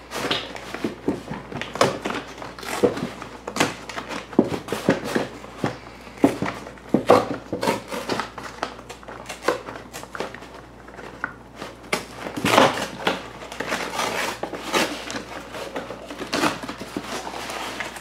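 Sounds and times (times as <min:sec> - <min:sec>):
cardboard tearing: 0:06.3 - 0:18.0.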